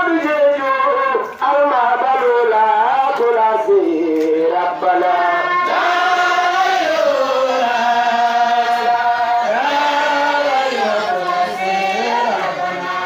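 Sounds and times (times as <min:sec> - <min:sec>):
man chanting into a microphone: 0:00.0 - 0:05.5.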